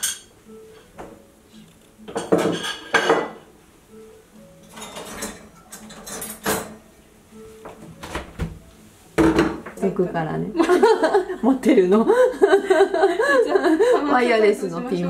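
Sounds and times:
chopsticks clinking on dishes: 4.6s - 6.8s.

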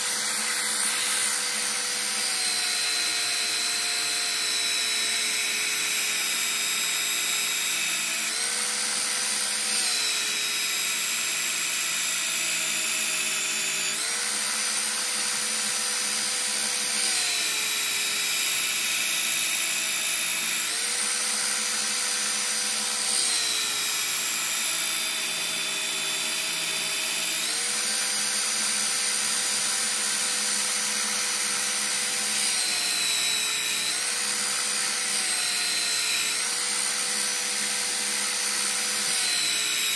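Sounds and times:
belt sander grinding a blade: 0.0s - 39.9s.

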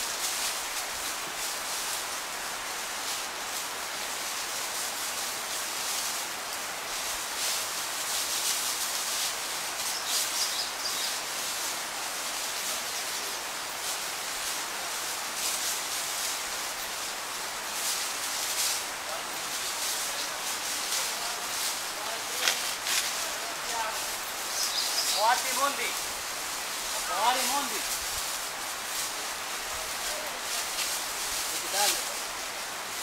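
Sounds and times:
animals rustling dry leaves: 0.0s - 33.0s
bird chirping: 9.9s - 11.2s, 24.5s - 25.4s.

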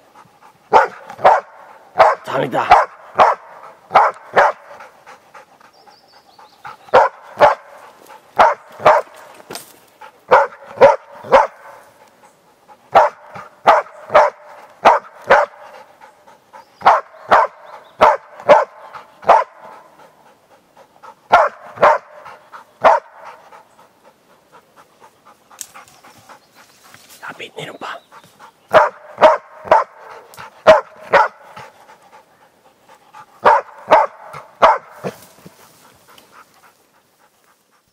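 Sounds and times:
dog barking: 0.7s - 4.8s, 6.9s - 9.2s, 10.3s - 11.9s, 12.9s - 15.8s, 16.8s - 20.0s, 21.3s - 23.5s, 28.7s - 31.7s, 33.4s - 35.2s.

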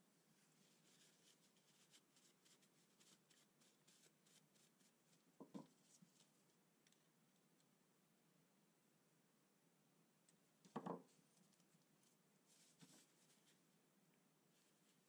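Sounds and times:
soft knocks: 5.4s - 5.7s, 10.7s - 11.1s
cloth rustling on steel: 11.4s - 13.6s.

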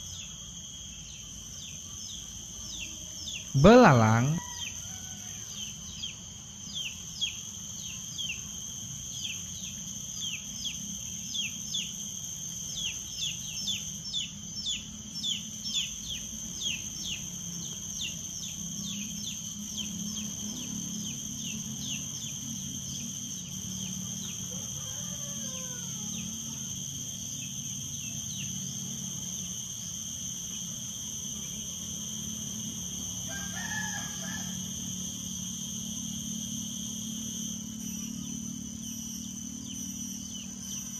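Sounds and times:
high-pitched insect buzzing: 2.1s - 4.8s
rooster crowing faintly: 3.6s - 5.6s, 24.5s - 26.7s.

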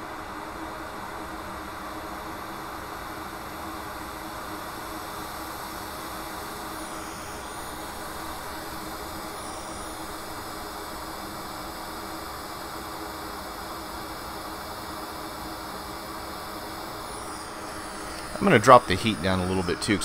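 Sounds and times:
hot air nozzle hissing: 17.1s - 19.3s.

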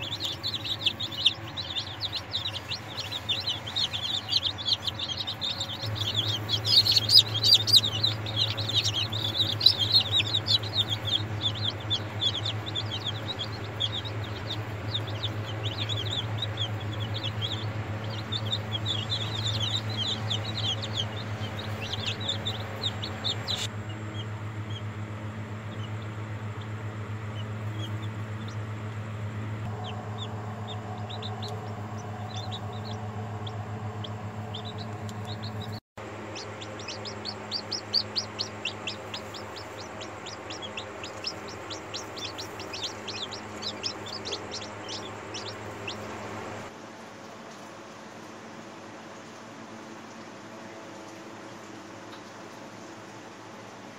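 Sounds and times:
chicks peeping: 0.0s - 46.8s, 49.0s - 53.9s
steady low hum: 0.0s - 53.9s.

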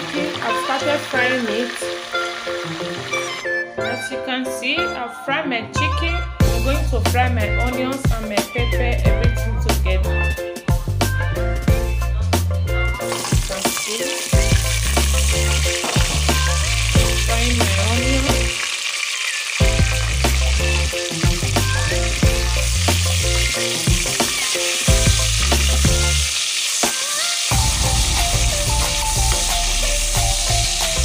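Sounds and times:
onions sizzling in hot oil: 0.0s - 3.5s, 13.0s - 31.0s
background music: 0.0s - 31.0s.

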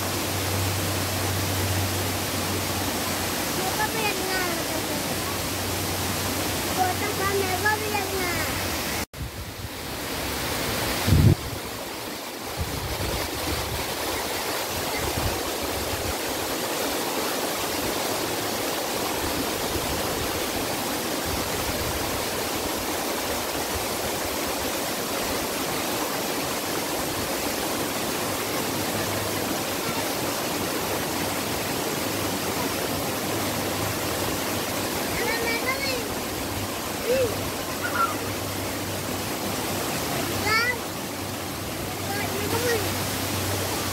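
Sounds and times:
stream rushing over rocks: 0.0s - 43.9s.

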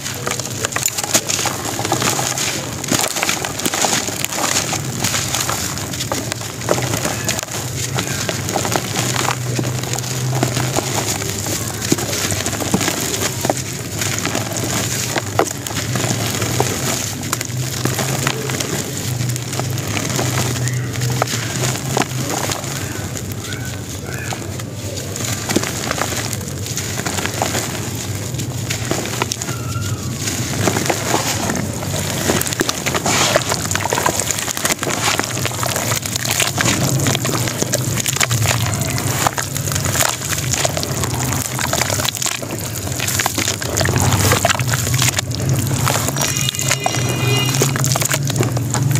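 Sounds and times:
cement lumps crumbling in hands: 0.0s - 48.9s
grit pattering into a bowl: 0.0s - 48.9s
small sharp crackles: 0.0s - 48.9s.

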